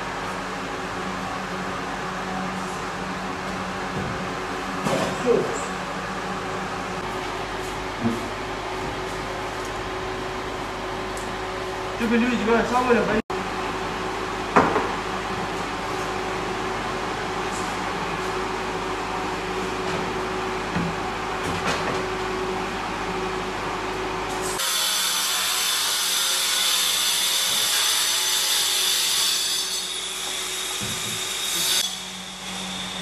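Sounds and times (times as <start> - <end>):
power tool running: 24.4 - 33.0.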